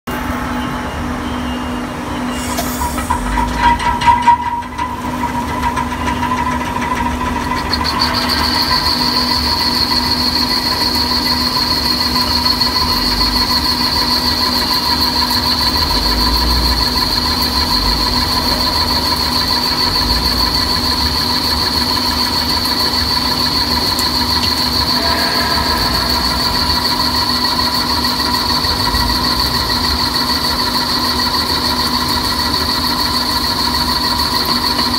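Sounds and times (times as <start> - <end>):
high steady whine: 4.7 - 32.6
lathe machine hum: 4.8 - 34.9.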